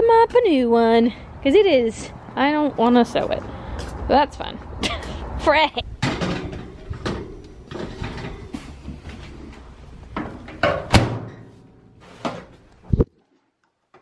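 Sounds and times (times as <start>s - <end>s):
household knocks and clatters: 6.0s - 9.4s.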